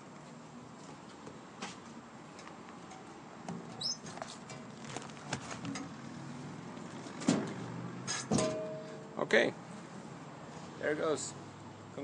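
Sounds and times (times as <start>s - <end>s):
handling clicks and rustles: 0.3s - 6.1s.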